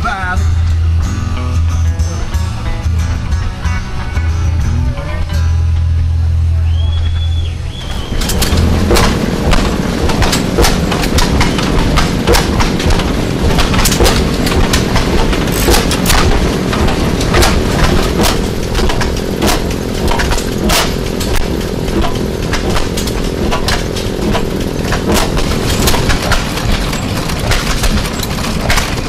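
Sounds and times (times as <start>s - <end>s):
steady mechanical drone: 0.0s - 29.0s
engine exhaust pops: 7.7s - 29.0s.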